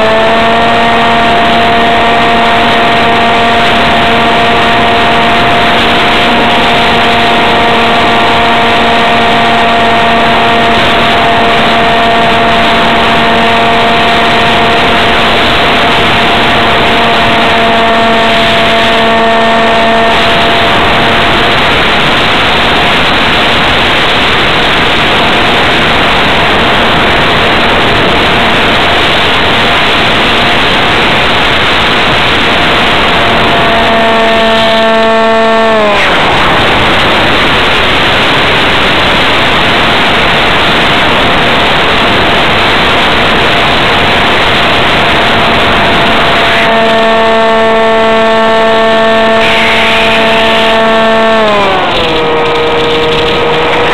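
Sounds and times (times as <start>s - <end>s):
electric motor and propeller whine: 0.0s - 53.9s
wind rush over microphone: 0.0s - 53.9s.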